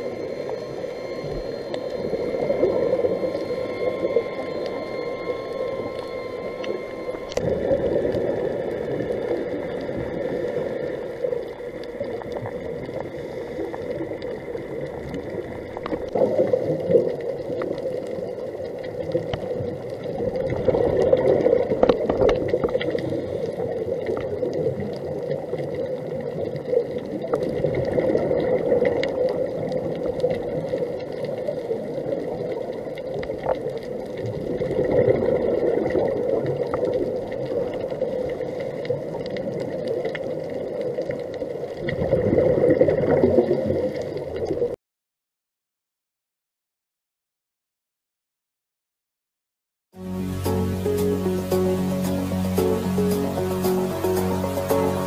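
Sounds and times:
faint high whine: 0:00.0 - 0:24.8
bubbles gurgling underwater: 0:00.0 - 0:44.8.

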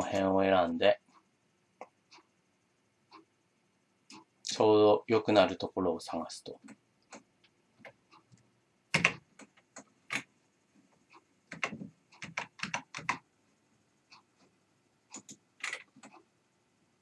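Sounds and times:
keyboard and mouse clicks: 0:04.1 - 0:04.3, 0:06.6 - 0:10.3, 0:11.1 - 0:13.2, 0:15.1 - 0:16.3.

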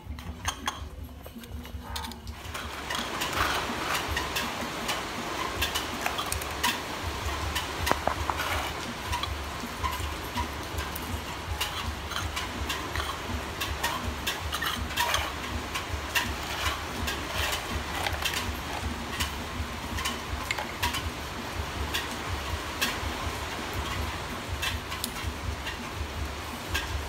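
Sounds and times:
plastic toy cookware clicking: 0:00.1 - 0:04.0.

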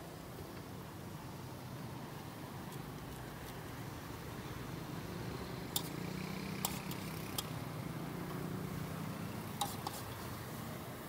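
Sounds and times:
sharp clicks and taps: 0:09.6 - 0:10.0.

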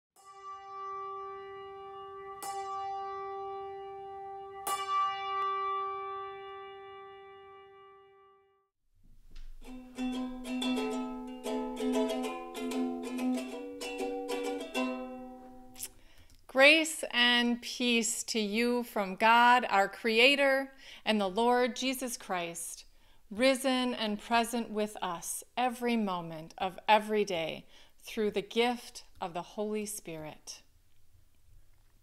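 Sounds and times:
ukulele plucked melody: 0:09.4 - 0:15.9.

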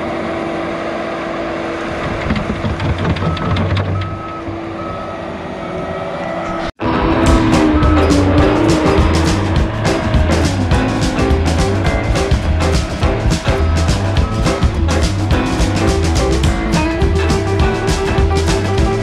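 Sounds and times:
diesel engine running: 0:00.0 - 0:19.0
music: 0:06.8 - 0:19.0.

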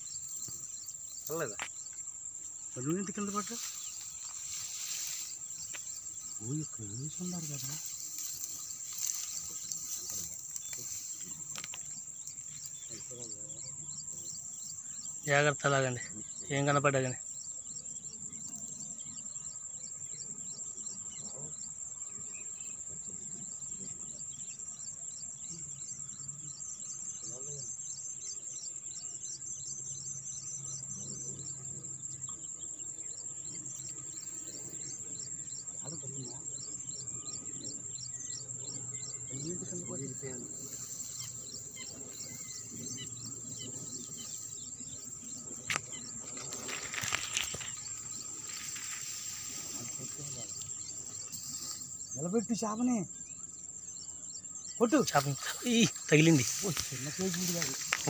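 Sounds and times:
grass rustling against microphone: 0:00.0 - 0:15.4, 0:38.6 - 0:52.2, 0:54.8 - 0:58.0
insects trilling: 0:00.0 - 0:58.0
small birds chirping: 0:00.0 - 0:58.0.

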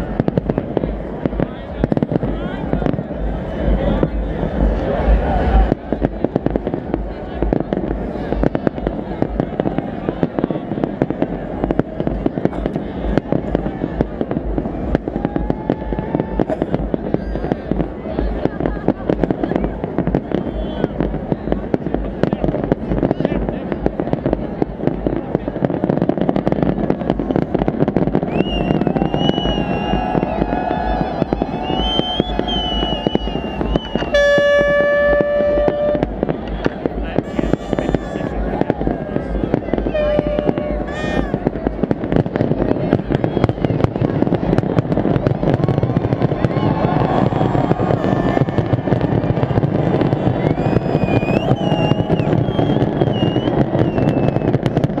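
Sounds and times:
crowd din: 0:00.0 - 0:55.0
fireworks bursting and crackling: 0:00.0 - 0:55.0
horn blast: 0:33.9 - 0:36.2, 0:39.8 - 0:40.9.

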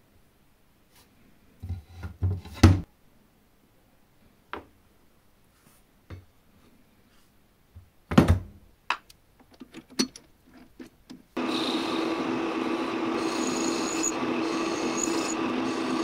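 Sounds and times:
workshop machine running: 0:11.4 - 0:16.0.

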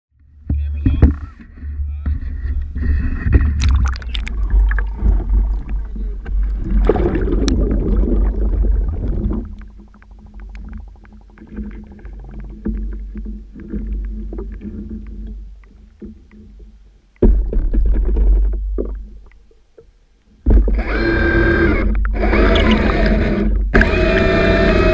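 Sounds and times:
low underwater rumble: 0:00.1 - 0:20.8
water sloshing and splashing: 0:02.8 - 0:20.8.

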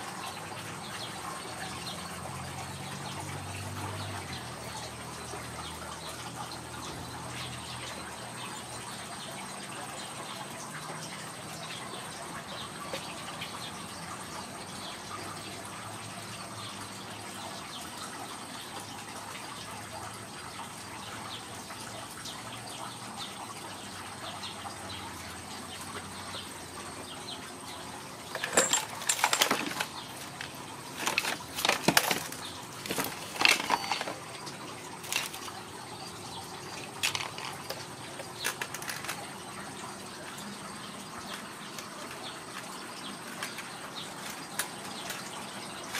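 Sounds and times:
kittens scuffling and clattering toys: 0:28.3 - 0:39.5, 0:41.2 - 0:45.9.

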